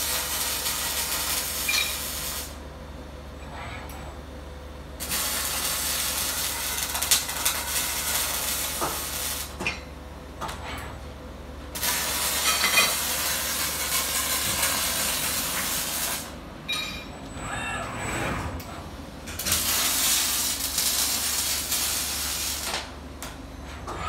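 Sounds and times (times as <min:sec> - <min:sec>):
welding arc crackling hiss: 0:00.0 - 0:02.6, 0:05.0 - 0:09.6, 0:11.7 - 0:16.4, 0:19.3 - 0:23.0.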